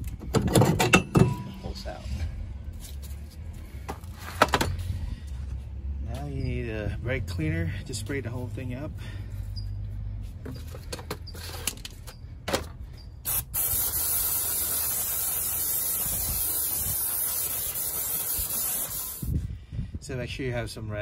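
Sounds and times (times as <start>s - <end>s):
aerosol spray hissing: 13.3s - 19.4s.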